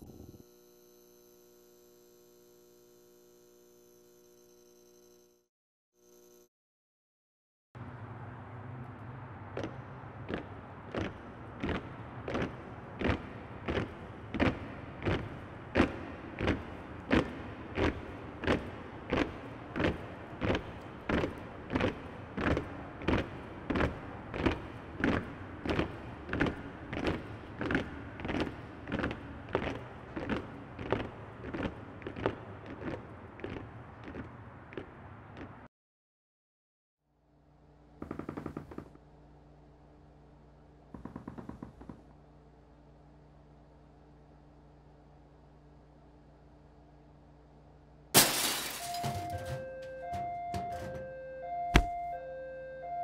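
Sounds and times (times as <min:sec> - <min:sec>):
city street drone: 0:07.8 - 0:35.7, 0:37.1 - 0:38.0, 0:39.0 - 0:41.0, 0:42.1 - 0:53.0
crowd marching footsteps: 0:09.5 - 0:35.7, 0:49.0 - 0:52.0.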